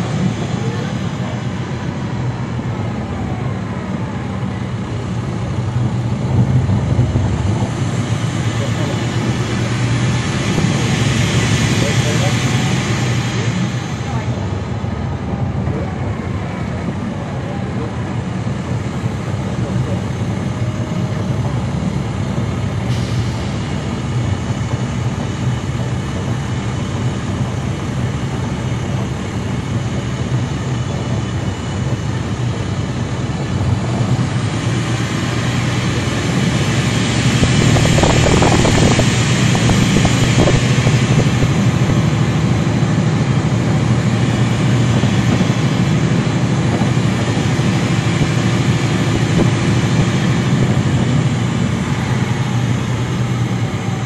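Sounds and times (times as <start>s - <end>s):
bus diesel engine running: 0.0s - 54.0s.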